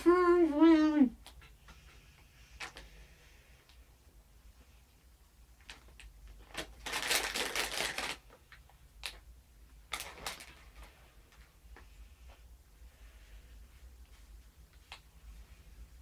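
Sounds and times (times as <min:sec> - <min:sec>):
plastic bag crinkling: 0:05.6 - 0:11.0.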